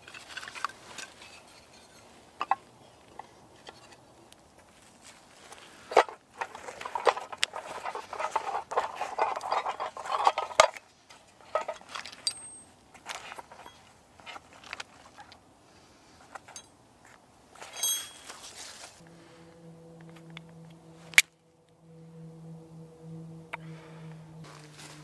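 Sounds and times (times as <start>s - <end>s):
metal clink: 12.2s - 12.7s, 16.5s - 16.7s, 17.6s - 18.6s.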